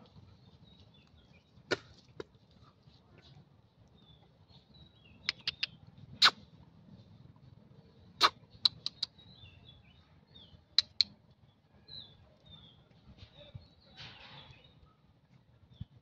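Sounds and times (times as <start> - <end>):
faint high bird-like chirps: 4.8 - 6.4.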